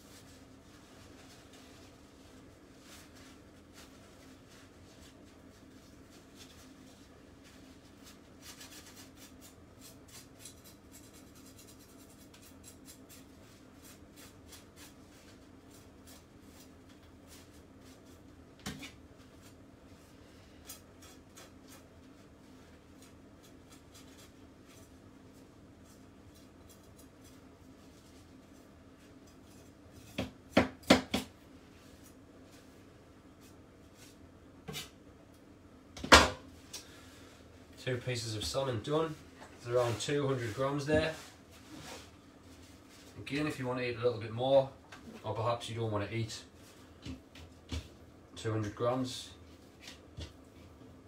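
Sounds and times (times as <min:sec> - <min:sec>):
knife scraping fish scales: 0:08.4 - 0:15.0, 0:20.6 - 0:21.9.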